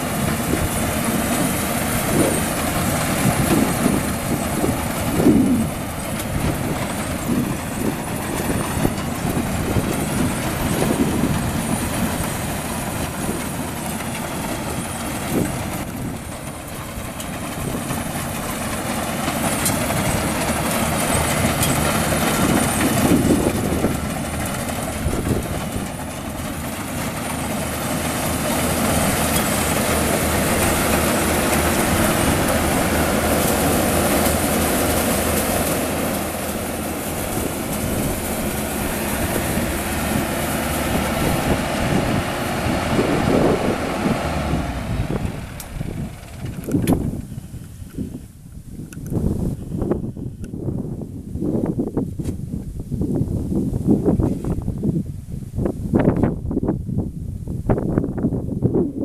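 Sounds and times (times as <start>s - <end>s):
combine harvester running: 0.0s - 59.0s.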